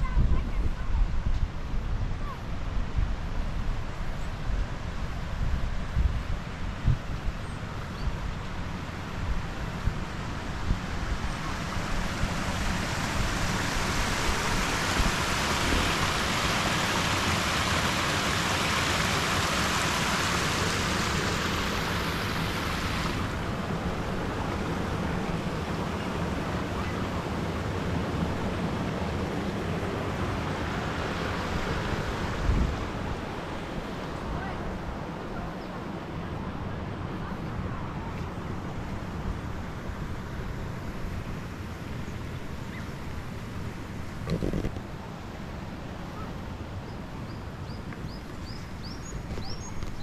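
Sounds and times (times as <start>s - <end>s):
wind buffeting microphone: 0.0s - 3.2s
high steady hiss: 0.0s - 50.0s.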